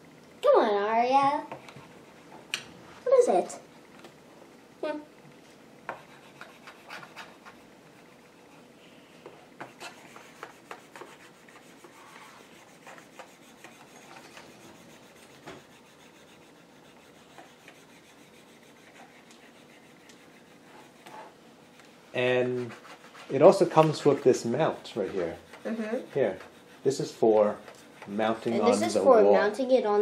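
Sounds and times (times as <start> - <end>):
stylus scratching on screen: 5.9 - 8.7, 9.6 - 28.9.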